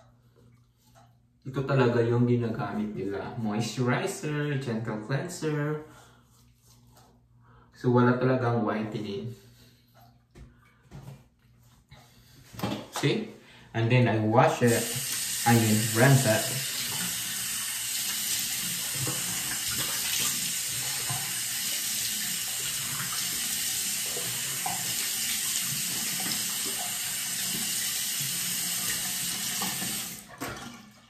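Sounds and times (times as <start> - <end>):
faucet running into sink: 14.7 - 31.0.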